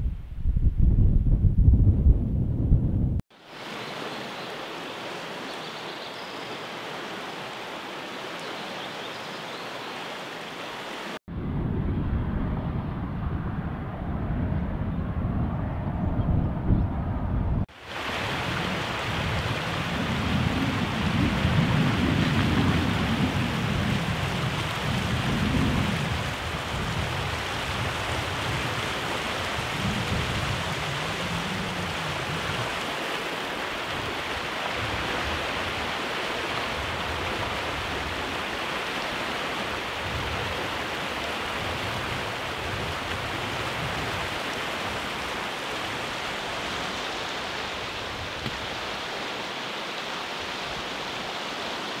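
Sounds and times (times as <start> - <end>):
low rumbling: 0.0 - 3.2, 11.3 - 17.7
creek rushing: 3.3 - 11.2, 17.7 - 52.0.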